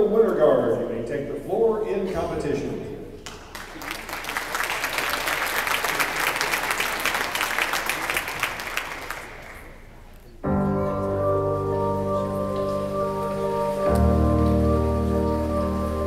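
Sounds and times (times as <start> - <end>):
audience applause: 3.3 - 10.0
music with sustained chords: 10.5 - 16.0.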